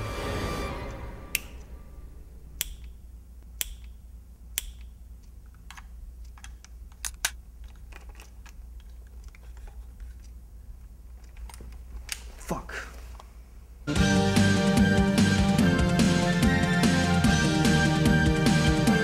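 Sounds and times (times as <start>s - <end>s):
steady low hum: 0.0s - 13.9s
sharp clicks: 1.4s - 1.7s, 2.6s - 9.4s.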